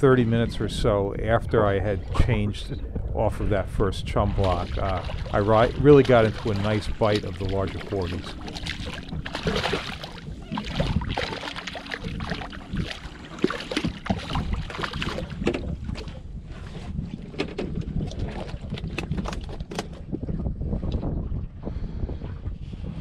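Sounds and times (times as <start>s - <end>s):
wind rumble on microphone: 0.0s - 23.0s
fish splashing at water surface: 4.4s - 15.7s.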